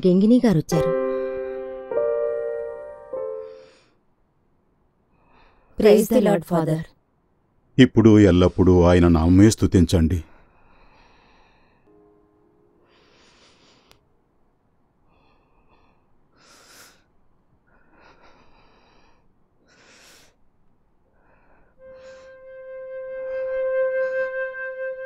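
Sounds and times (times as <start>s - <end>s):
soft flute music: 21.8s - 25.0s.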